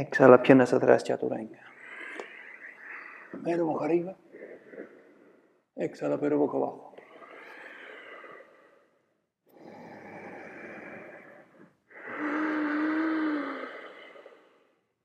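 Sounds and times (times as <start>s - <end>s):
person breathing deeply: 1.6s - 5.8s, 6.9s - 15.0s
voiced sighing exhale: 7.0s - 14.8s.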